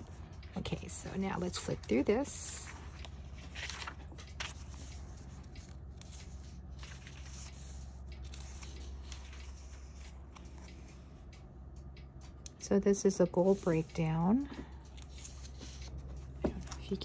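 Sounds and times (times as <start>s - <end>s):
low steady hum: 0.0s - 17.0s
paper pages rustling: 0.9s - 11.2s, 14.8s - 17.0s.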